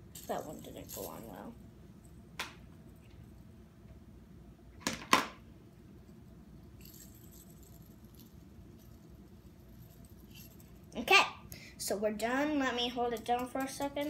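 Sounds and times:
small metal bells clinking: 0.0 - 1.6, 6.2 - 10.9.

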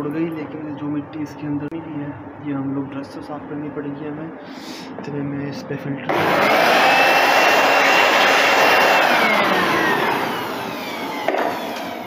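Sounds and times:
air blower rushing with motor whine: 6.1 - 12.0.

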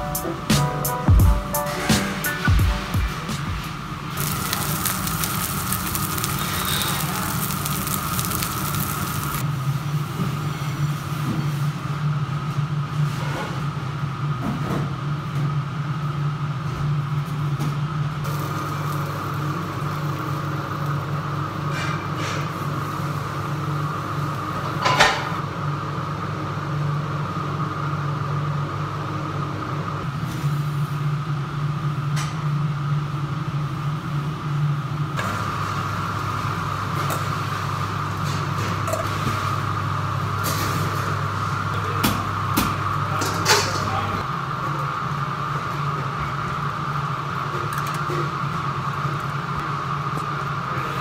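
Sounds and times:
extraction fan humming: 0.0 - 9.7.

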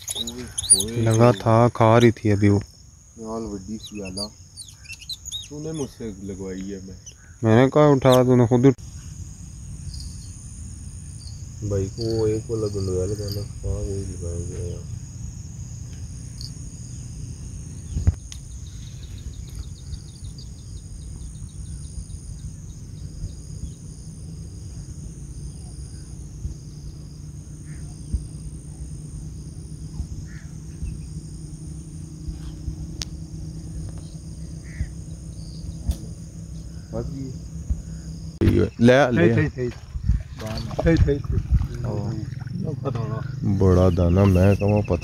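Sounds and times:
insects chirring: 0.0 - 45.0
low rumble: 39.7 - 43.6.

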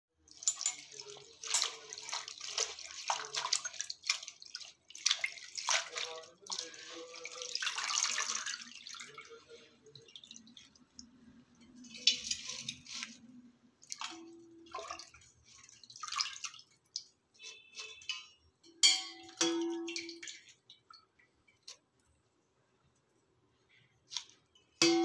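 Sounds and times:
water splashing and dripping: 0.2 - 22.1, 24.1 - 25.0
hands swishing leaves in water: 0.3 - 10.9, 11.8 - 18.0, 24.1 - 24.4.

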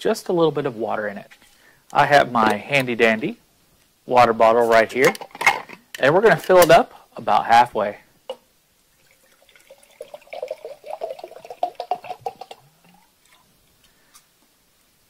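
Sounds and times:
water pouring into glass jar: 8.9 - 13.5.

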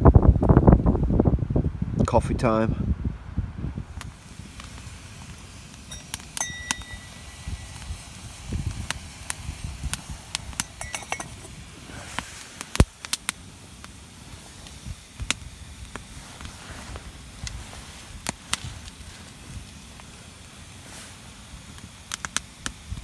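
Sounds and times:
campfire crackling and popping: 0.0 - 23.0.

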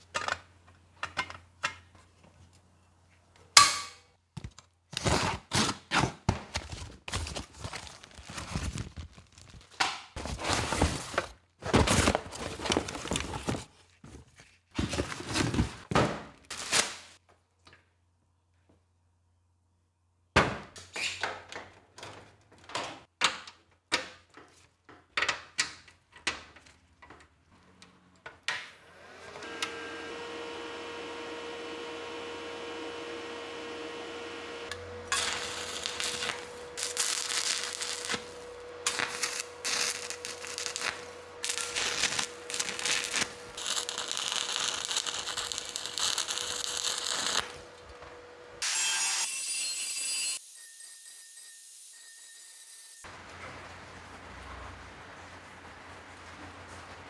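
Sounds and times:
power tool motor humming: 29.0 - 40.8.

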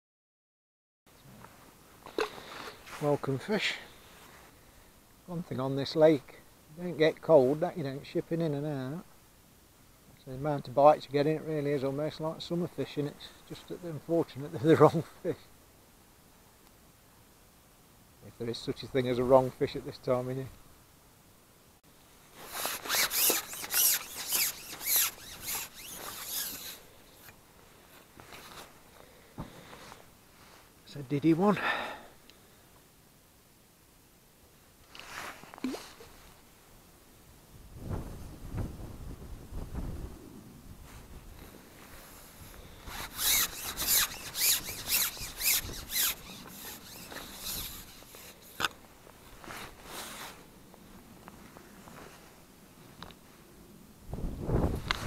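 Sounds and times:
fishing pole rasping against sleeve: 22.4 - 27.4, 42.8 - 48.8.

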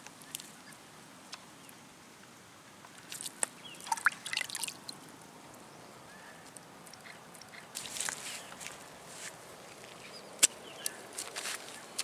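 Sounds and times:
water splashing into plastic bucket: 3.1 - 4.8.

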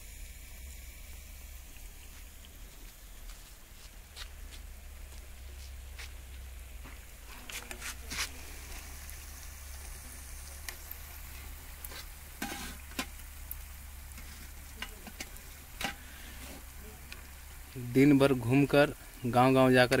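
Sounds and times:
sweets sizzling in hot oil: 0.0 - 20.0
metal skewer clicking on pan: 14.2 - 16.0.

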